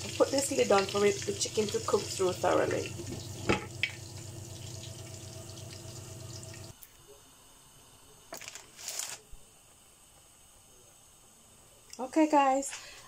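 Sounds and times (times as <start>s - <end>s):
chicken frying in hot oil: 0.0s - 6.8s.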